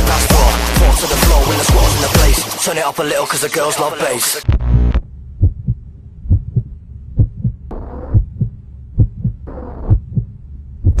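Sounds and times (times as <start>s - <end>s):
deep bass drone: 4.4s - 11.0s
heartbeat thumps: 4.5s - 11.0s.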